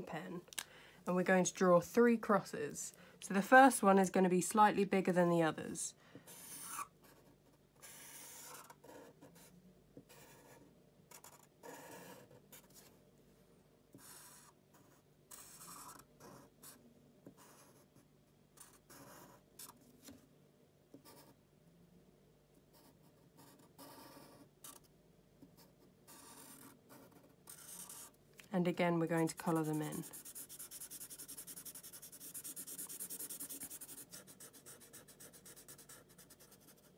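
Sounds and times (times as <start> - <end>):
marker pen drawing on paper: 6.3 - 13.0, 13.9 - 19.8, 22.7 - 28.2, 29.1 - 36.9.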